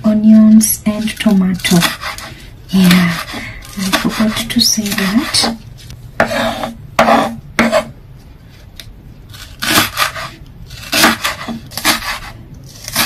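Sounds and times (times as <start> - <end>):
knife chopping on cutting board: 3.1 - 5.6, 6.2 - 7.9, 9.6 - 13.0.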